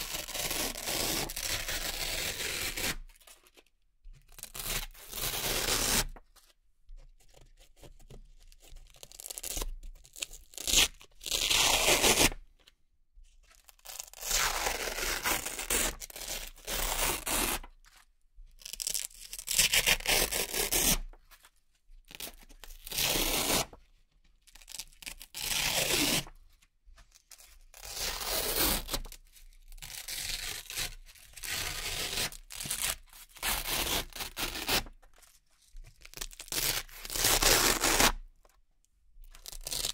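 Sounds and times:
velcro ripping: 0.0 - 3.0, 10.6 - 12.4, 18.8 - 21.0, 22.8 - 23.8, 24.6 - 26.3, 27.8 - 29.1, 29.8 - 34.9, 36.2 - 38.2.

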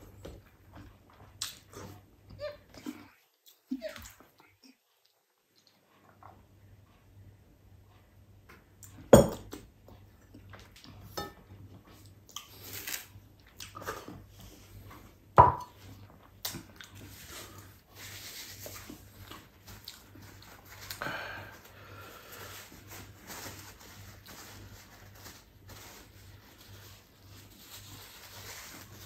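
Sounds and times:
chewing: 2.8 - 6.6, 15.7 - 17.8, 18.8 - 21.0
tableware knocking on table: 15.4 - 15.7
paper napkin rustling: 17.0 - 20.9, 21.6 - 29.0.

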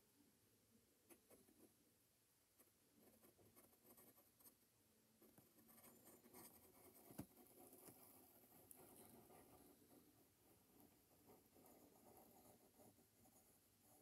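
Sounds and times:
pencil scratching on paper: 3.0 - 4.6, 5.2 - 14.0.

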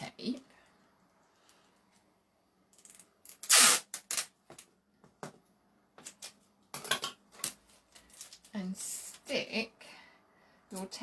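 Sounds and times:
sticky tape ripping off roll: 3.2 - 4.4.

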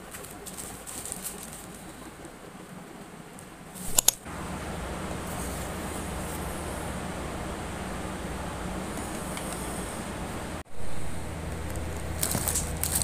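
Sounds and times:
packing materials handled: 0.0 - 1.9, 11.5 - 13.0
steady rushing noise: 0.0 - 13.0
sharp clicks: 3.8 - 4.3.

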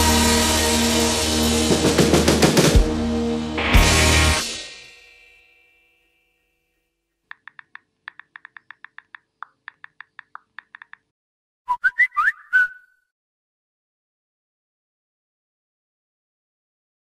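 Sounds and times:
smartphone keyboard tap clicks: 7.3 - 11.1.

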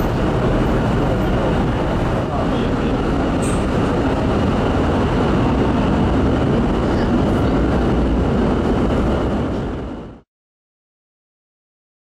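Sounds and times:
constant rushing noise: 0.0 - 10.2
ship engines running: 0.0 - 10.2.

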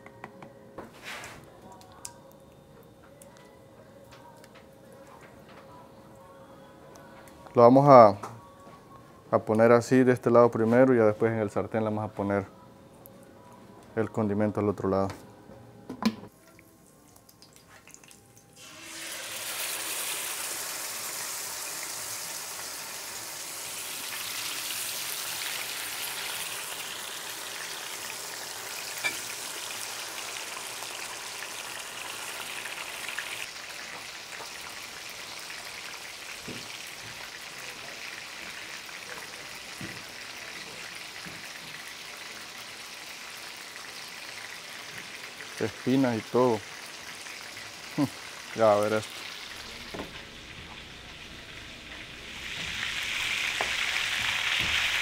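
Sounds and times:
fish sizzling in hot oil: 18.6 - 55.0.

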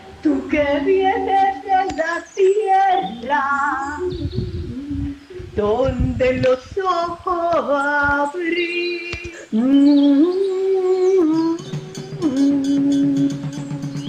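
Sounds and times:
person singing slow melody: 0.0 - 14.0
instrumental music: 11.1 - 14.0.

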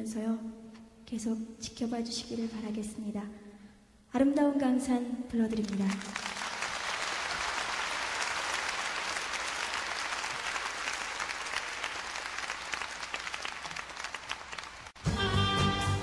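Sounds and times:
audience applauding: 5.8 - 15.0.

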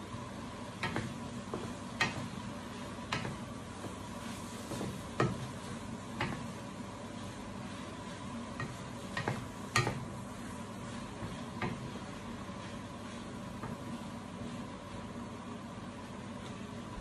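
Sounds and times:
food sizzling in pan: 0.1 - 14.5
spatula knocking against pan: 0.8 - 2.4, 3.1 - 3.5, 4.7 - 5.5, 6.2 - 6.6, 8.6 - 10.2
spatula scraping frying pan: 0.8 - 13.9.

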